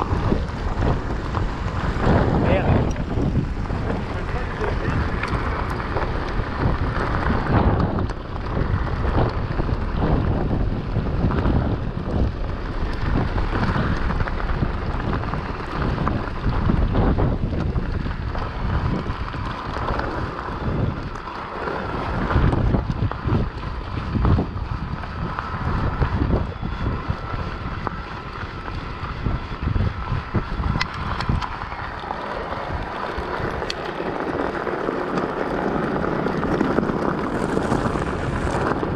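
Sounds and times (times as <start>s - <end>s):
bike tyres crunching on gravel: 0.0s - 38.9s
wind buffeting microphone: 0.0s - 38.9s.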